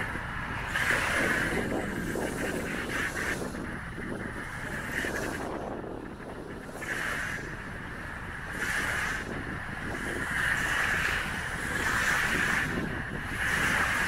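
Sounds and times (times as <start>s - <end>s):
small waves washing onto shore: 0.0s - 3.7s, 8.4s - 14.0s
wind rumbling on microphone: 0.0s - 14.0s.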